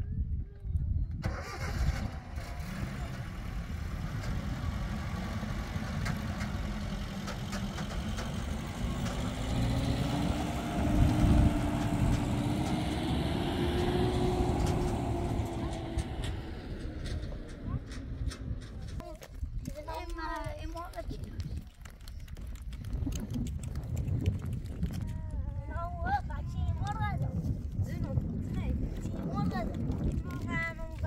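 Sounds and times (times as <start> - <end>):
pickup truck engine driving off: 1.2 - 19.0.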